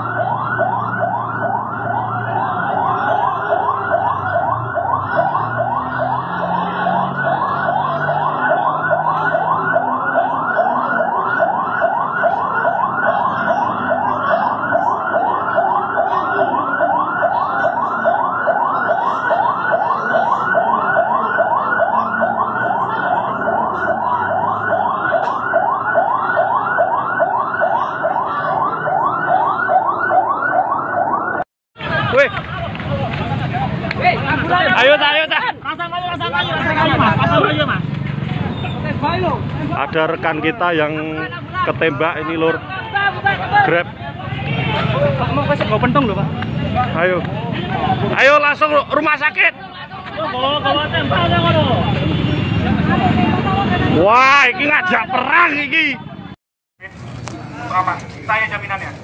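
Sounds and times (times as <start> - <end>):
siren yelping: 0.0 - 32.2.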